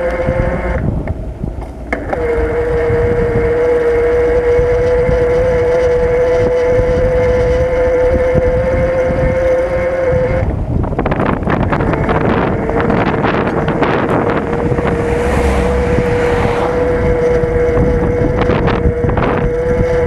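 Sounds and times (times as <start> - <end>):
bicycle mechanical whine: 0.0 - 20.0
wind rumble on microphone: 0.0 - 20.0.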